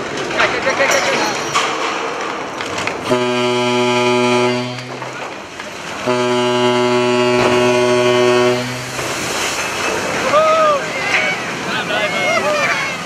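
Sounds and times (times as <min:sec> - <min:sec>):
ship's horn blasts: 0:03.0 - 0:09.6.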